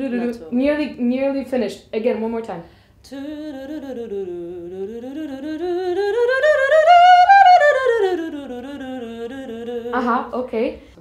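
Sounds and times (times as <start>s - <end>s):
woman singing a vocal scale: 3.0s - 10.5s.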